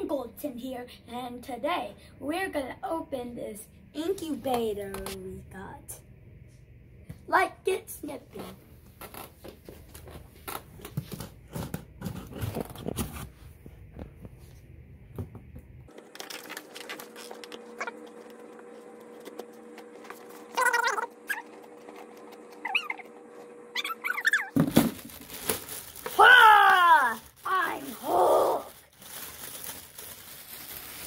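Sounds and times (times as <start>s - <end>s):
steady hum: 0.0s - 28.8s
short wavering high sounds: 20.5s - 21.6s, 23.7s - 24.5s.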